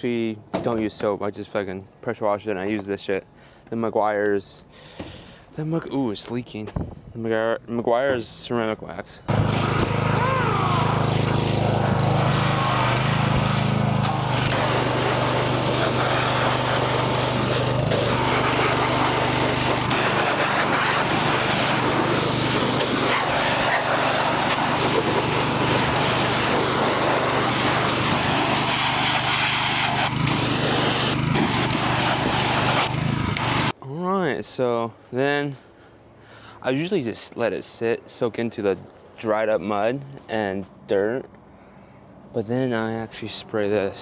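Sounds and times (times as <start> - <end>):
pressure washer motor hum: 9.3 - 33.8
water jet hissing: 9.5 - 33.7.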